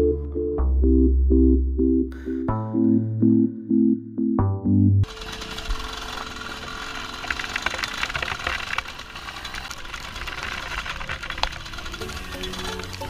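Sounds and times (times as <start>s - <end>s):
dirt bike engine running: 5.0s - 13.0s.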